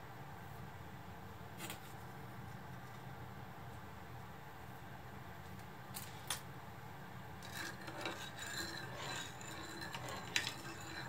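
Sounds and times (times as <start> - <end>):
metal spoon scraping pan: 7.4 - 11.0.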